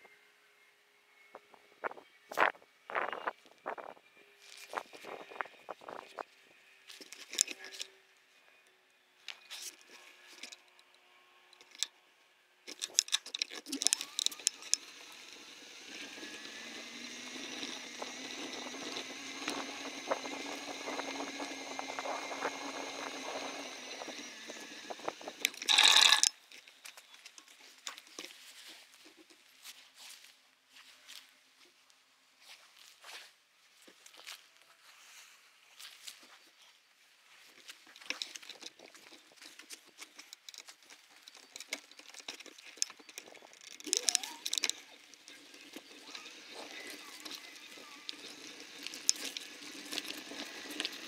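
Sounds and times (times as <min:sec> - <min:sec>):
bike clicks and rattles: 0:01.4 - 0:07.9, 0:09.3 - 0:10.8, 0:11.6 - 0:11.9, 0:12.7 - 0:29.4, 0:37.5 - 0:51.0
bicycle rolling on dirt trail: 0:12.7 - 0:28.8, 0:37.3 - 0:51.0.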